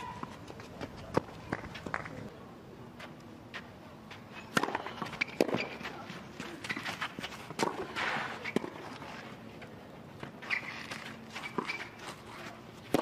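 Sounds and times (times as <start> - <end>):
tennis ball struck by racquet: 4.5 - 5.7.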